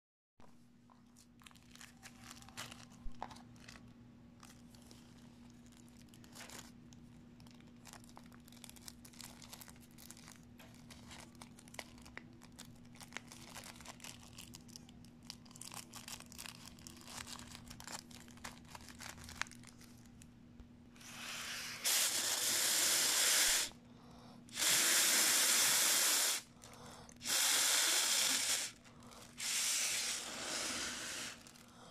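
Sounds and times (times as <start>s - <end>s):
foil balloon crinkling: 0.8s - 20.3s, 25.6s - 31.9s
air hissing through balloon valve: 21.0s - 23.8s, 24.5s - 26.5s, 27.2s - 31.9s.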